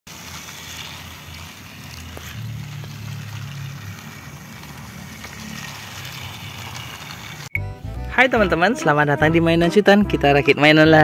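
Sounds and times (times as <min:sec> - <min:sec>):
toy train motor humming: 0:00.1 - 0:07.5.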